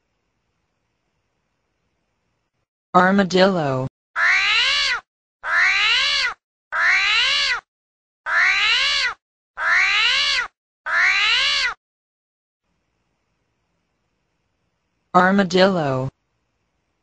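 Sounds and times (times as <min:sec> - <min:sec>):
animal call rising and falling: 0:04.2 - 0:07.7, 0:08.3 - 0:11.8.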